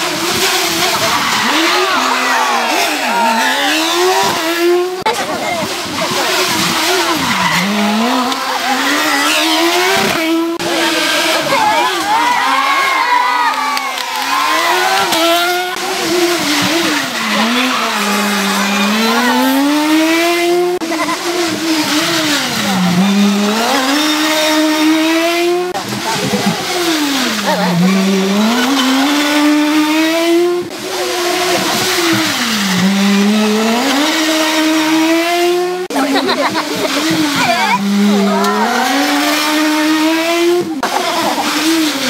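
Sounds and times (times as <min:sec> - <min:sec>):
rally car engines revving: 0:00.0 - 0:42.0.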